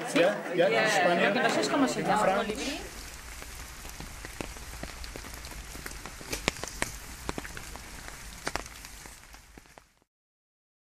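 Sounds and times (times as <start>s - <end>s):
steady rain falling: 0.7s - 10.1s
sharp taps of raindrops: 2.9s - 10.1s.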